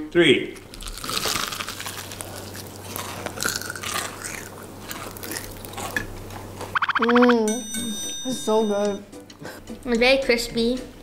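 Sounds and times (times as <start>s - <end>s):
people chewing crispy fried chicken: 0.6s - 6.2s.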